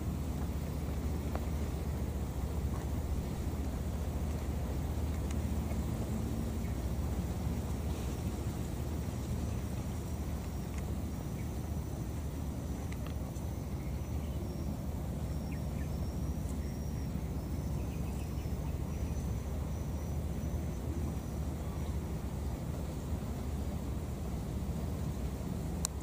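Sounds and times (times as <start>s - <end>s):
faint high-pitched chirping: 10.4s - 21.9s.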